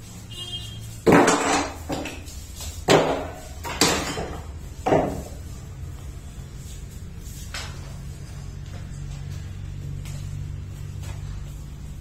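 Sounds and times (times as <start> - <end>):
glass sliding door banging: 2.8 - 5.4.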